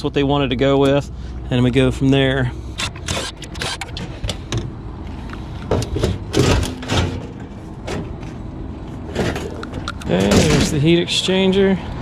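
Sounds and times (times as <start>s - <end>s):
sheet metal scraping and rattling: 5.8s - 8.1s.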